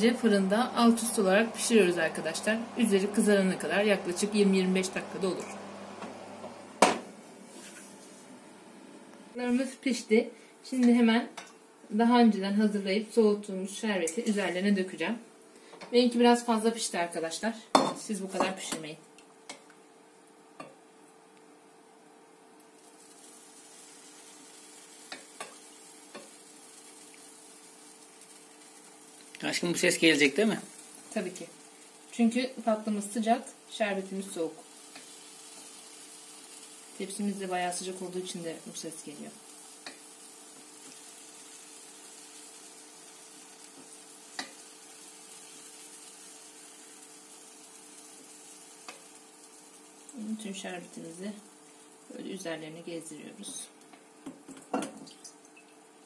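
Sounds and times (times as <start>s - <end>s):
syrup sizzling on hot cookies: 0.0s - 8.4s, 22.6s - 55.5s.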